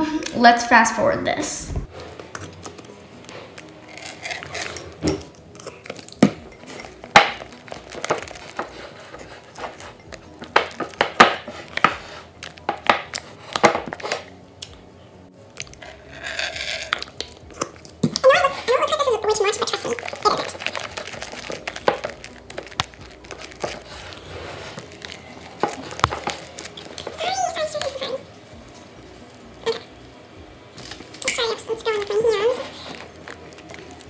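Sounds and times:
spatula stirring slime: 2.1s - 14.3s, 15.6s - 28.0s.

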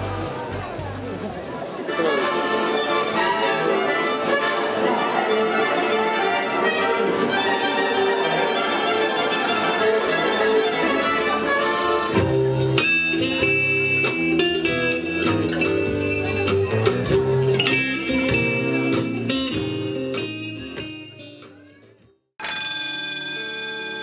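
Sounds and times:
blues band playing: 0.0s - 22.0s
violin and accordion tune: 1.8s - 12.6s.

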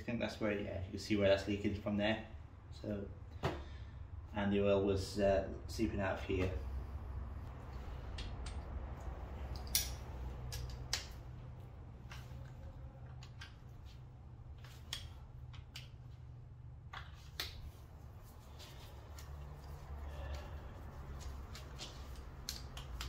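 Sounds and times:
low steady hum: 0.0s - 23.0s.

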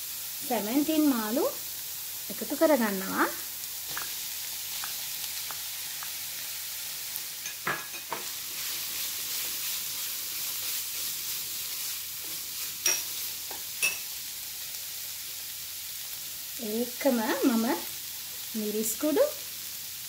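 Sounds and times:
food sizzling in a wok: 0.0s - 20.0s
spoon knocking against pan: 7.5s - 8.3s.

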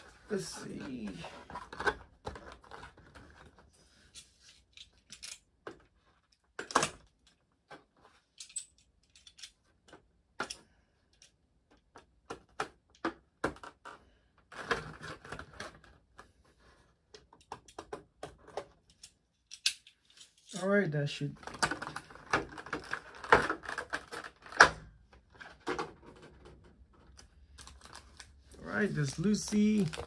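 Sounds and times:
packaging rustling: 27.0s - 30.0s
clicks and taps of unpacking: 29.0s - 30.0s.

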